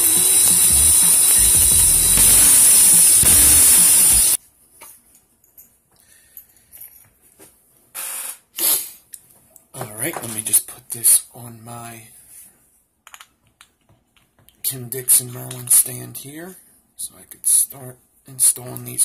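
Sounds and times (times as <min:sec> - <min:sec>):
loud mechanical whirring with hiss: 0:00.0 - 0:04.4.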